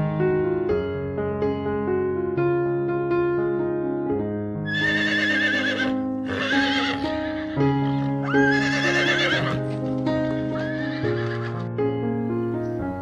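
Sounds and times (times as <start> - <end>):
sustained keyboard music: 0.0 - 13.0
horse whinnying: 4.7 - 9.6, 10.2 - 11.7.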